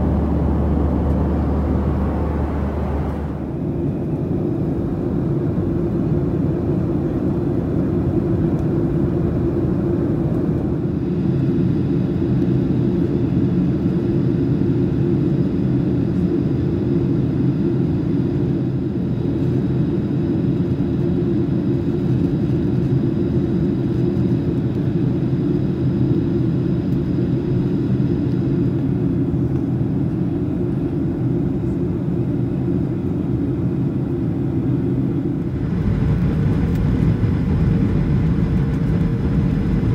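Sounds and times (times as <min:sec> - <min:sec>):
rushing airflow: 0:00.0 - 0:04.3
jet engines hum: 0:00.0 - 0:39.9.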